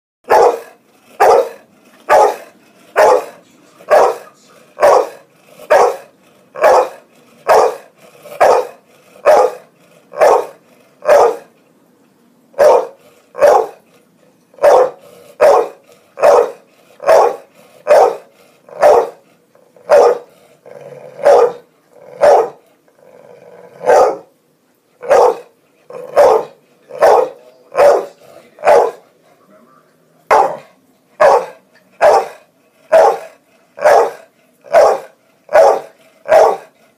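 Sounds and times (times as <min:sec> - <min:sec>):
dog barking: 0:00.2 - 0:11.5, 0:12.6 - 0:13.8, 0:14.6 - 0:19.2, 0:19.8 - 0:20.3, 0:21.2 - 0:22.6, 0:23.8 - 0:24.3, 0:25.0 - 0:29.0, 0:30.3 - 0:36.7.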